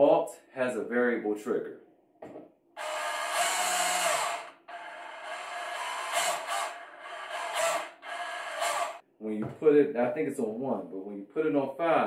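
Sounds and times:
band saw running: 2.8s - 9.0s.

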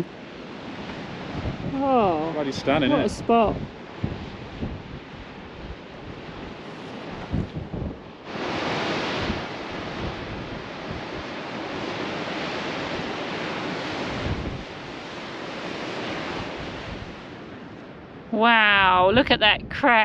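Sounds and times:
surf breaking against cliffs: 0.0s - 17.9s
wind buffeting microphone: 0.0s - 20.0s.

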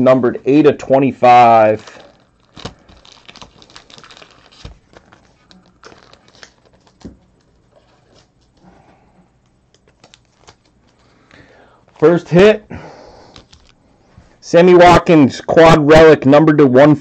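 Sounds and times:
trading cards handled on a table: 1.9s - 11.1s, 13.3s - 13.8s.

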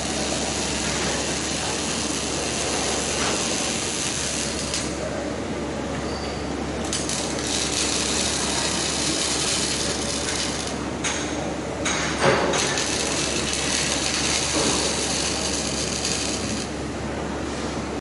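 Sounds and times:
crackling welding arc: 0.0s - 5.0s, 6.8s - 11.2s, 11.8s - 16.8s.

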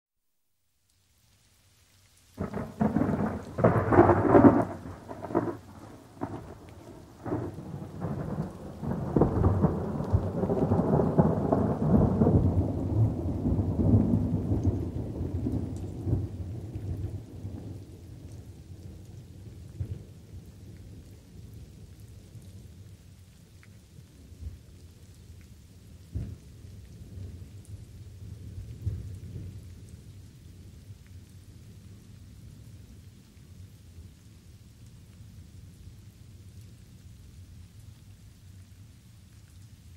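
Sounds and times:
light rain pattering: 0.2s - 39.9s
thunder cracking and rumbling: 2.4s - 17.9s.

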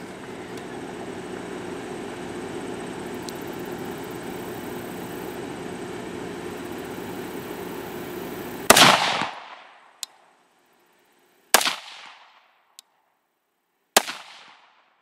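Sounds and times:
rifle shots with echo: 8.7s - 10.0s, 11.5s - 12.6s, 14.0s - 15.0s.

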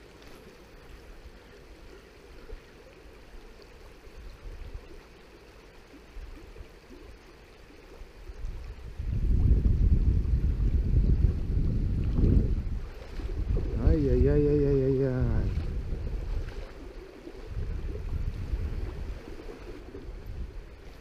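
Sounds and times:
river running: 0.0s - 21.0s
wind buffeting microphone: 8.2s - 21.0s.

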